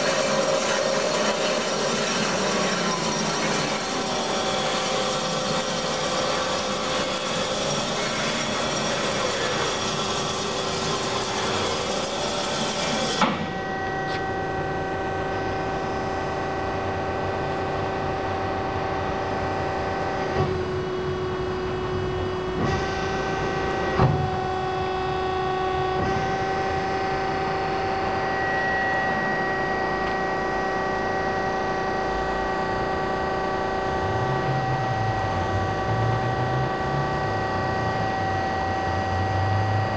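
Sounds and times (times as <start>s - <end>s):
bandsaw humming and whining: 0.0s - 39.9s.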